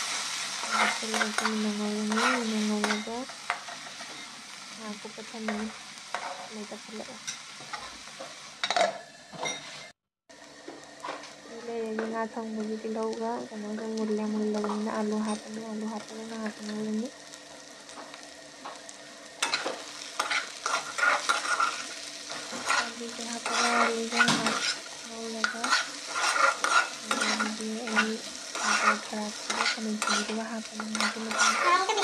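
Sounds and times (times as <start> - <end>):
food sizzling in oil: 0.0 - 32.0
metal spatula scraping wok: 0.1 - 4.4, 5.5 - 6.6, 19.4 - 32.0.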